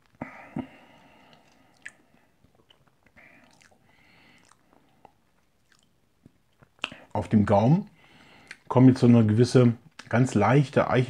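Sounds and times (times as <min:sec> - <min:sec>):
soft hissing breaths: 0:00.2 - 0:02.5, 0:03.1 - 0:05.3, 0:07.9 - 0:08.7
wet mouth smacks: 0:01.3 - 0:03.8, 0:04.4 - 0:07.0.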